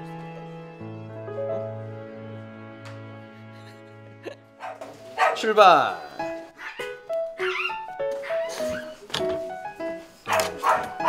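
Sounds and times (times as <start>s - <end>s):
background music melody: 0.0s - 11.0s
small dog crying: 6.6s - 9.0s.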